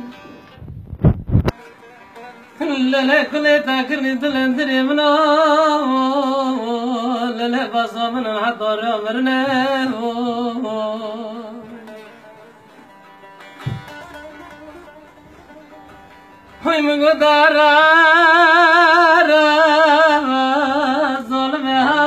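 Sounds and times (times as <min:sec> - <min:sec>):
long-necked lute: 0:00.0 - 0:22.0
man singing a lament: 0:01.6 - 0:12.1, 0:16.5 - 0:22.0.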